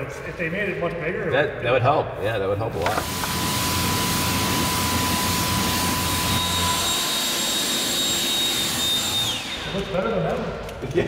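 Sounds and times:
pressure washer spraying water: 2.9s - 9.6s
leaf blower whining: 2.9s - 9.9s.

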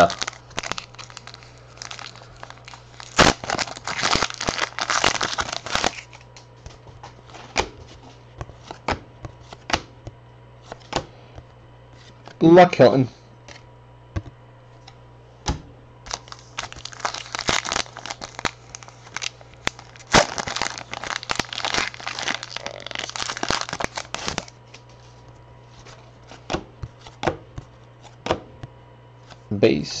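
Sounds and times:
wrappers crinkling: 0.0s - 8.8s, 16.0s - 26.4s.

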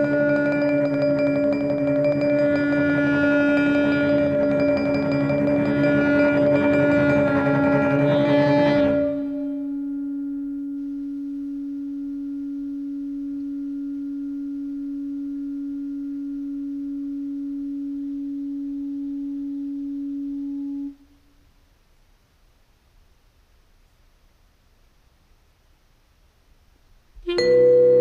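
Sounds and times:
sustained pure tone: 0.0s - 21.4s, 27.2s - 28.0s.

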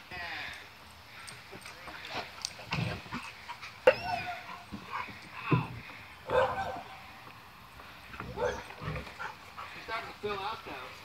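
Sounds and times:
dogs barking: 6.2s - 6.9s, 8.2s - 9.8s.

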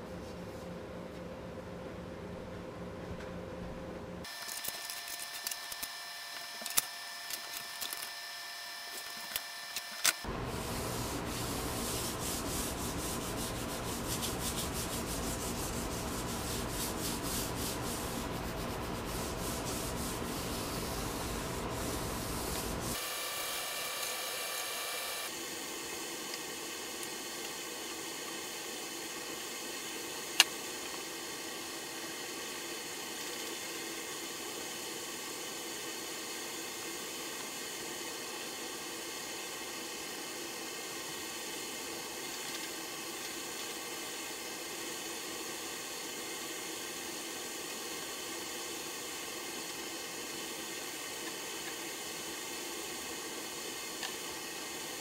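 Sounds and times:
wood sanding: 10.3s - 23.0s.

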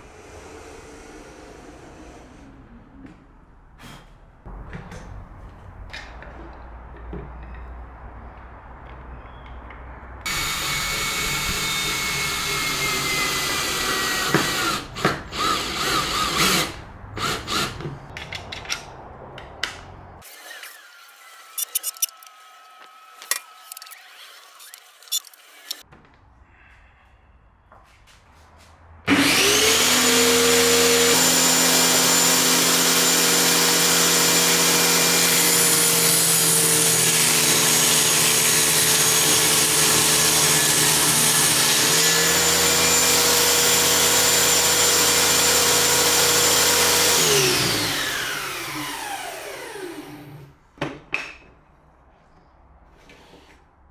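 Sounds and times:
circular saw cutting plywood: 0.0s - 2.7s, 10.3s - 18.1s, 29.1s - 50.5s.

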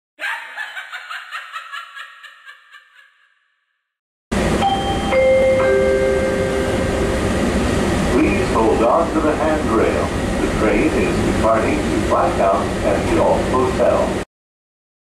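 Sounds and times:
train car interior noise: 4.3s - 14.2s
mallet percussion jingle: 4.6s - 7.2s
chime tones: 4.6s - 7.6s.

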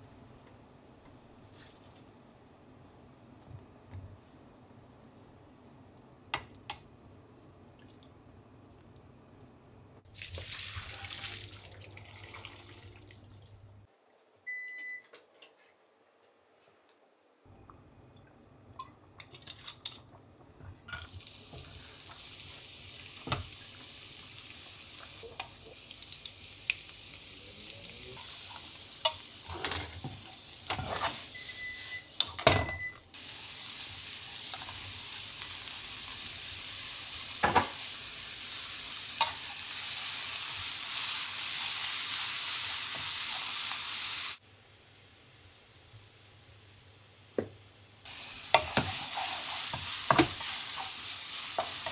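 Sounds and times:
onion and bacon sizzling in pan: 20.9s - 51.9s
spoon clicking and scraping pan: 39.2s - 39.5s, 48.5s - 51.9s.

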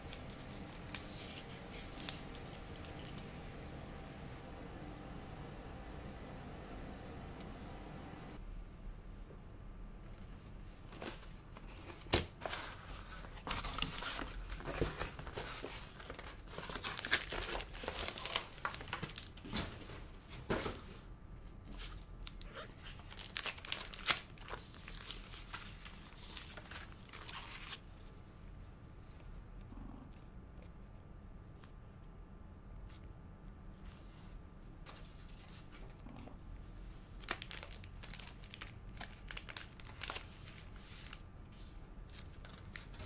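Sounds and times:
cardboard and plastic crinkling: 10.9s - 19.8s, 21.7s - 27.8s, 37.2s - 41.2s.

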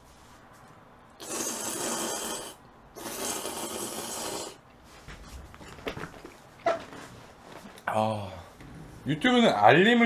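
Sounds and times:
slurping noodles: 1.2s - 4.6s.

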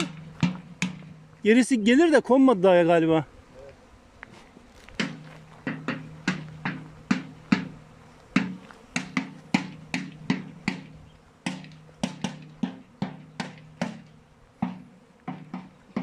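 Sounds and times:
sharp drum-like hits: 0.0s - 1.3s, 5.0s - 7.7s, 8.4s - 10.9s, 11.5s - 16.0s.

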